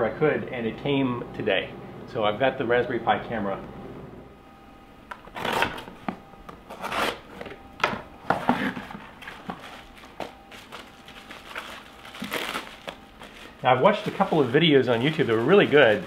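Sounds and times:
cardboard scraping and rustling: 0:05.2 - 0:06.0, 0:06.7 - 0:07.6, 0:08.2 - 0:16.0
bubble wrap crinkling: 0:08.6 - 0:16.0.

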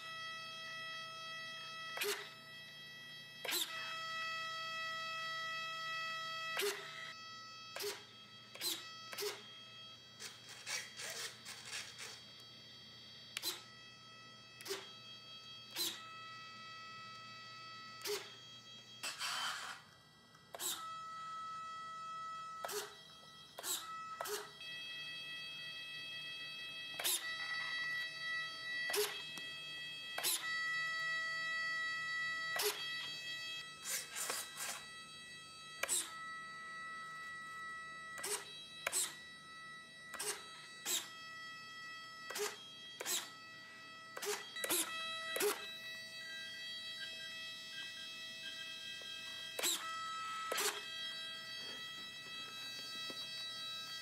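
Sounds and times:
servo buzzes: 0:06.5 - 0:07.1, 0:10.2 - 0:12.4, 0:15.7 - 0:17.0, 0:19.0 - 0:24.6, 0:30.2 - 0:35.1, 0:40.1 - 0:43.5, 0:44.1 - 0:54.0
high electronic whine: 0:13.3 - 0:24.6, 0:26.9 - 0:54.0.

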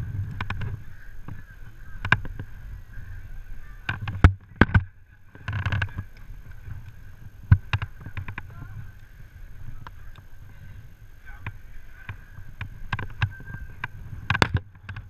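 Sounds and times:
low wind rumble: 0:00.0 - 0:15.0.

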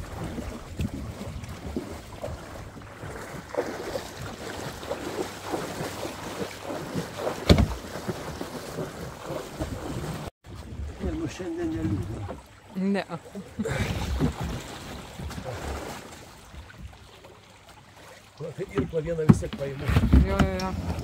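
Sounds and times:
paddle splashes: 0:00.0 - 0:21.0.

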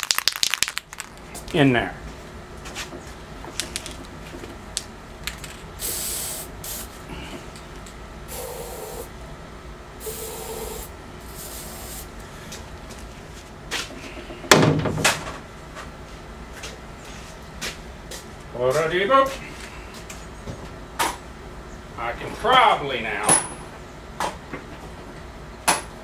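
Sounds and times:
aerosol spray hisses: 0:05.8 - 0:07.0, 0:08.3 - 0:09.1, 0:10.0 - 0:12.1
loud knock: 0:14.5 - 0:15.3.

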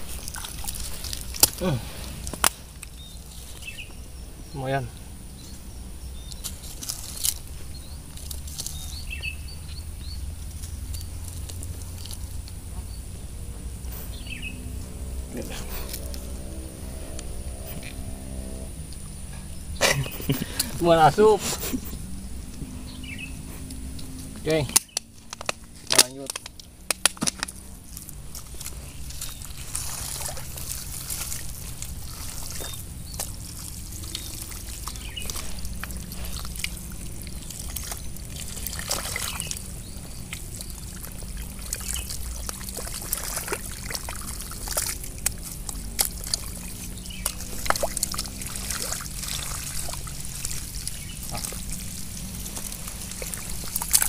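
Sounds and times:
shallow water splashing: 0:00.0 - 0:04.7, 0:19.8 - 0:54.0
wet mud squelching: 0:00.0 - 0:54.0.

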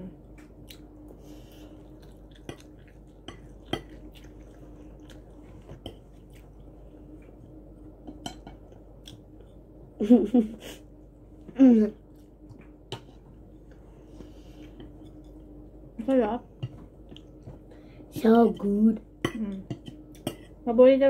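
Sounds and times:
faint steady hum: 0:00.0 - 0:21.0
chewing noodles: 0:00.4 - 0:07.6
chopsticks tapping plates: 0:02.4 - 0:06.2, 0:08.0 - 0:09.2, 0:12.5 - 0:13.3, 0:14.6 - 0:15.6, 0:16.6 - 0:17.6, 0:18.4 - 0:20.6.

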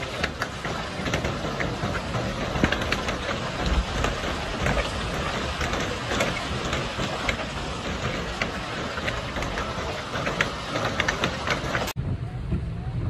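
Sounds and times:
hail and rain falling hard: 0:02.0 - 0:11.9
low rumble: 0:11.9 - 0:13.0.

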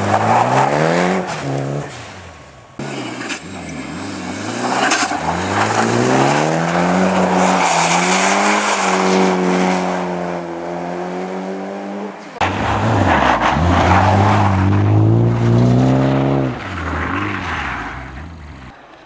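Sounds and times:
rally car engine at high revs: 0:02.8 - 0:18.7.

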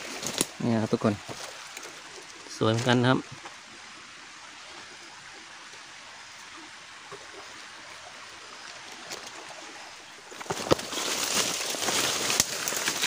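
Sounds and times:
flowing creek: 0:00.0 - 0:13.0
leaves and undergrowth rustling: 0:00.0 - 0:13.0
footsteps: 0:10.3 - 0:13.0.

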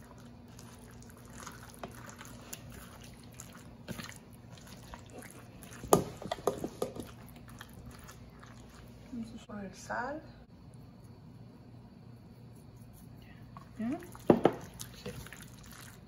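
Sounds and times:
wet squelches of kneaded meat: 0:00.0 - 0:09.4, 0:13.9 - 0:16.0.

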